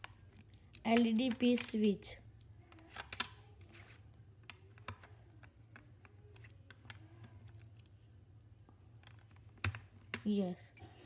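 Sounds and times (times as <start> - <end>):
plastic pieces clicking: 0.0 - 3.5.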